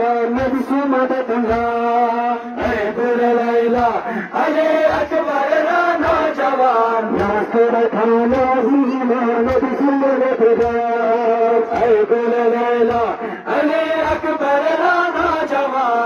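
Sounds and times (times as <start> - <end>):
men chanting a lament: 0.0 - 16.0
chest-beating thumps: 13.9 - 14.4.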